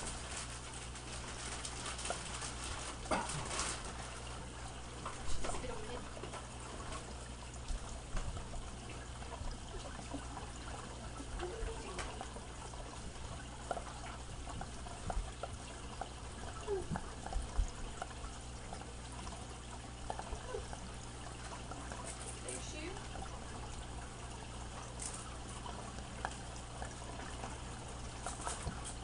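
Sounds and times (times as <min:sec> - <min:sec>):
plastic bags crinkling: 0:00.0 - 0:04.2
water sloshing in bags: 0:00.0 - 0:29.0.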